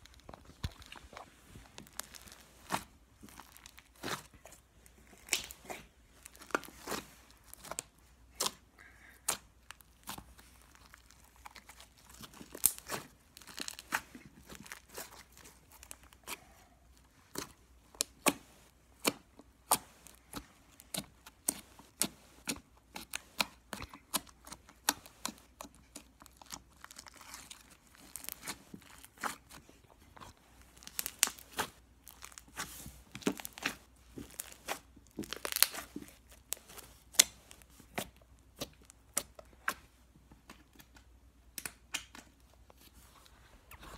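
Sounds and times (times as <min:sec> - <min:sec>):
slime popping and crackling: 0:00.0 - 0:04.5, 0:05.1 - 0:16.5, 0:17.2 - 0:29.6, 0:30.2 - 0:39.8.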